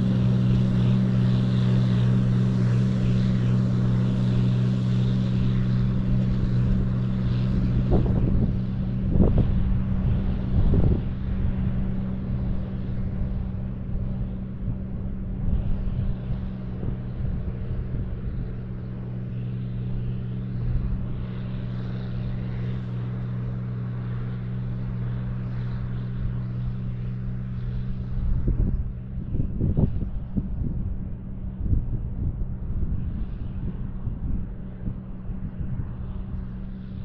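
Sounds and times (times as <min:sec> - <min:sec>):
tractor engine running: 0:00.0 - 0:29.4
wind buffeting microphone: 0:00.0 - 0:37.0.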